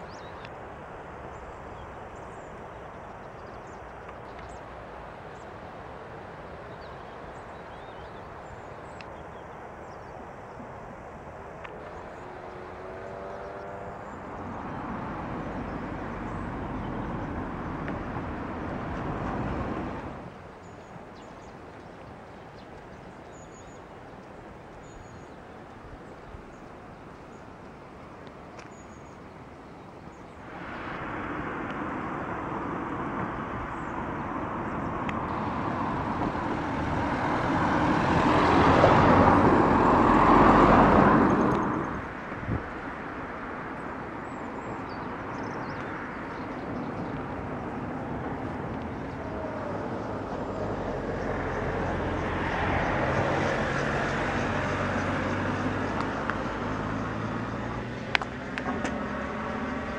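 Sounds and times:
steady traffic hum: 0.0s - 59.9s
vehicle passing: 11.9s - 20.3s, 30.4s - 59.9s.

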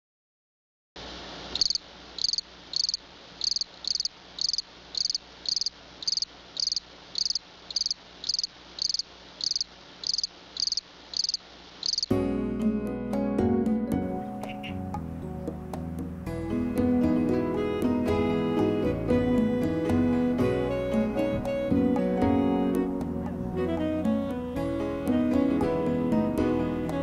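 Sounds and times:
cricket chirping: 1.5s - 12.1s
music: 12.1s - 27.0s.

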